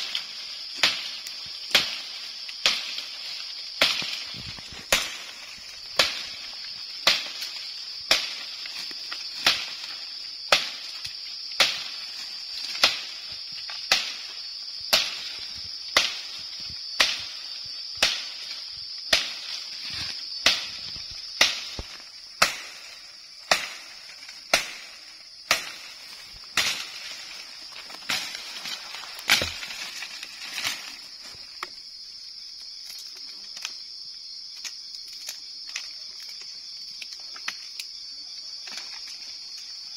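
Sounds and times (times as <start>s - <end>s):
machete chopping cane: 0.8s - 6.4s, 7.0s - 12.0s, 12.6s - 13.2s, 13.8s - 14.3s, 14.9s - 16.3s, 18.0s - 18.5s, 19.1s - 19.5s, 20.4s - 30.9s.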